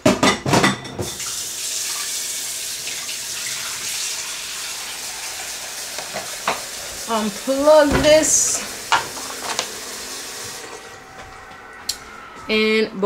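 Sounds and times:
kitchenware clattering: 0:00.0 - 0:01.3, 0:06.0 - 0:09.8.

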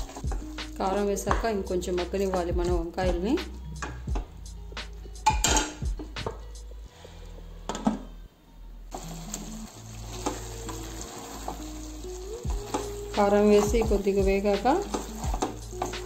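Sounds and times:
curry sizzling: 0:00.0 - 0:02.4, 0:08.9 - 0:16.0
metal spoon clinking against pot: 0:05.2 - 0:05.8.

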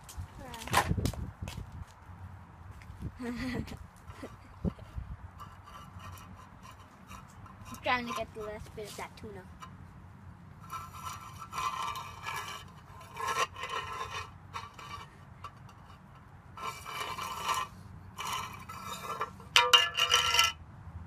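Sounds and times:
metal can scraping on concrete: 0:04.1 - 0:09.8, 0:10.6 - 0:20.6.

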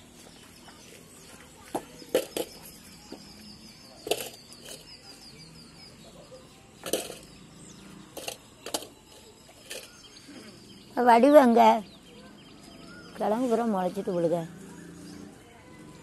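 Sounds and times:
stones clacking together: 0:04.0 - 0:05.0, 0:06.8 - 0:07.4.

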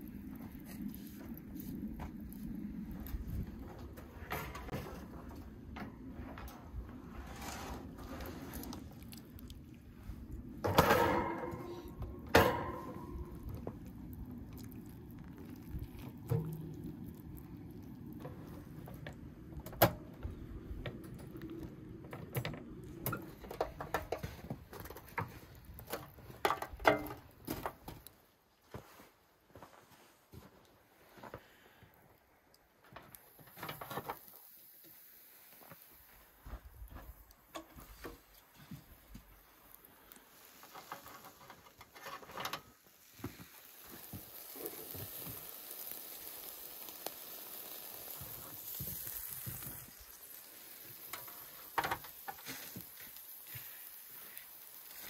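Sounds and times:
wire rack clanking on metal tray: 0:10.7 - 0:13.3.

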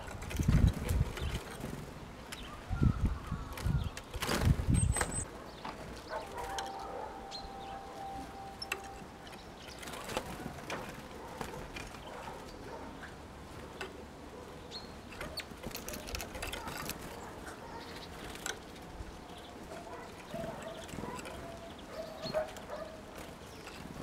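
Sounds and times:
faint steady tone: 0:06.5 - 0:10.4.

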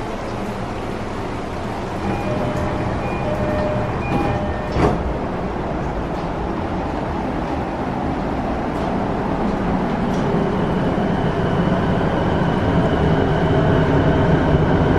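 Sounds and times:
train wheels rumbling: 0:00.0 - 0:14.9.

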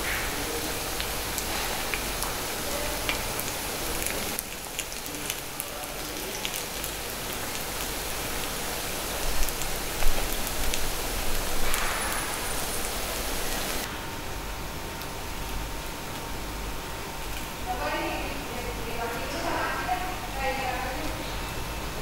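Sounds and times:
batter sizzling in hot pan: 0:00.1 - 0:13.9.

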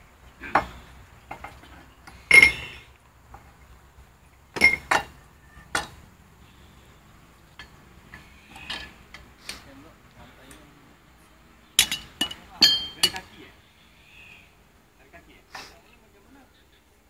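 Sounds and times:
metal tools clinking: 0:02.3 - 0:02.8, 0:04.6 - 0:05.2, 0:11.8 - 0:13.3.

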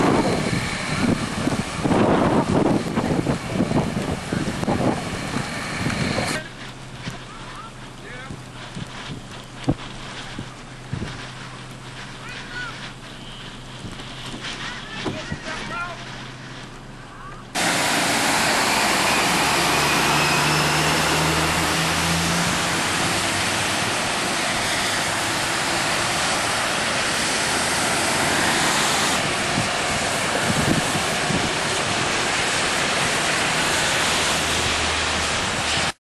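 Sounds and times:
engine low drone: 0:00.0 - 0:36.0.

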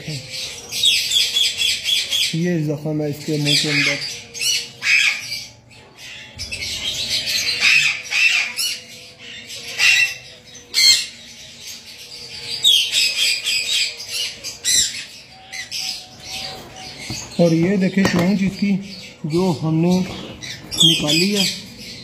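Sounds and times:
bird screeching: 0:03.4 - 0:11.2, 0:12.6 - 0:22.0.

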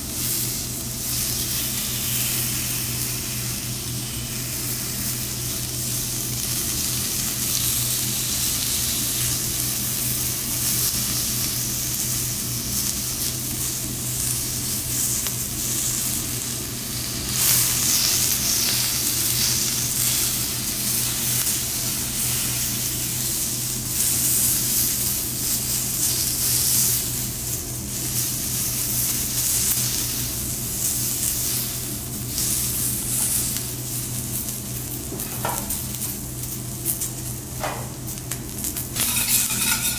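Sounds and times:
food sizzling on a hot griddle: 0:00.0 - 0:39.9.

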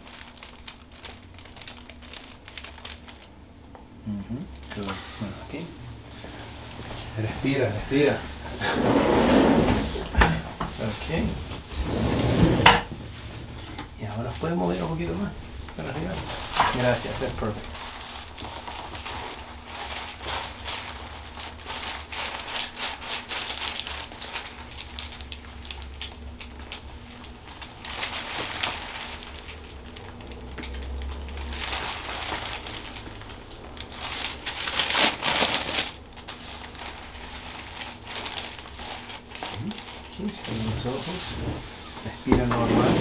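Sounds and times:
paper crinkling and rustling: 0:00.0 - 0:03.3, 0:04.6 - 0:05.1, 0:14.1 - 0:43.0.

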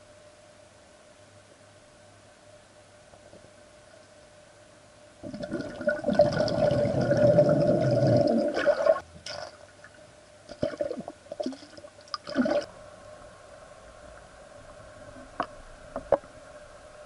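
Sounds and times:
water rushing underwater: 0:05.2 - 0:09.5.

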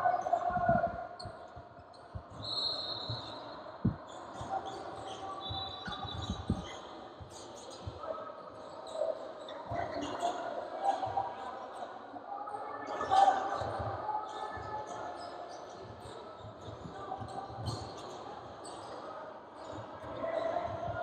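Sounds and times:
sneakers squeaking on floor: 0:01.2 - 0:08.0, 0:13.0 - 0:19.0.

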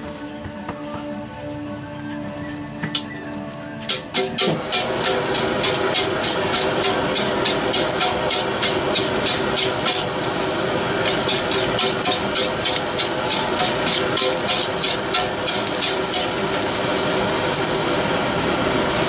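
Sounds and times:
metal spatula scraping a wok: 0:03.9 - 0:16.6
gas burner hiss: 0:03.9 - 0:19.0
pan sizzling: 0:03.9 - 0:19.0.

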